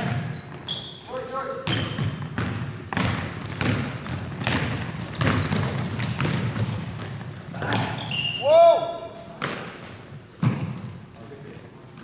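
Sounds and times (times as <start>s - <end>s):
sneakers squeaking on floor: 0.0s - 11.1s
basketball bouncing on wooden floor: 1.6s - 8.1s, 10.4s - 11.0s.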